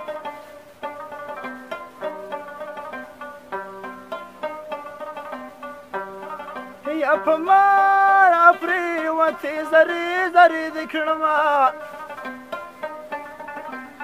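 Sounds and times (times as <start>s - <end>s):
plucked lute notes: 0.0s - 14.0s
person singing ornamented line: 6.8s - 12.0s.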